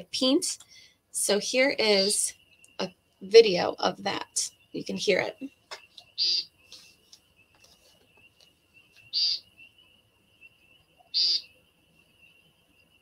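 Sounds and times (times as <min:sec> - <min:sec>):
woodcock peent call: 0:05.7 - 0:07.0, 0:07.6 - 0:09.5, 0:11.0 - 0:11.5.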